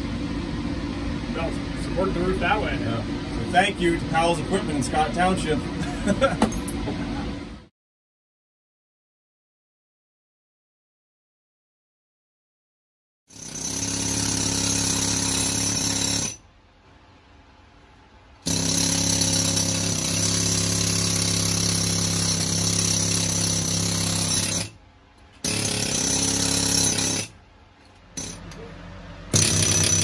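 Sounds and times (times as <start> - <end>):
pneumatic chipping hammer on rock: 18.4 - 24.8, 25.4 - 27.4, 28.2 - 28.6, 29.3 - 30.0.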